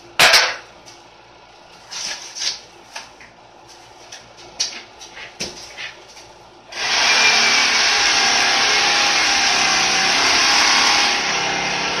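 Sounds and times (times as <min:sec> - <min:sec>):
electric tool whirring: 0:06.7 - 0:12.0.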